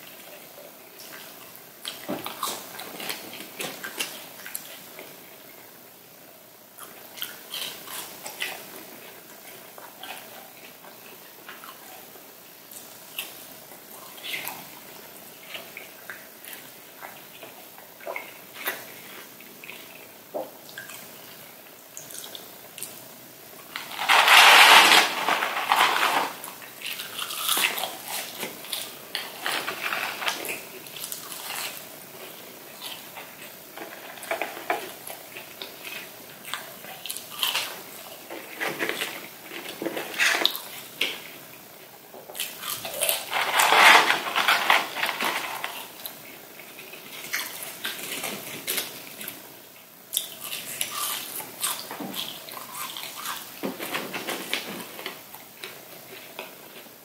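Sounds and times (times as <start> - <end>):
person chewing crunchy food: 23.7 - 41.4, 42.3 - 49.4, 50.1 - 53.6.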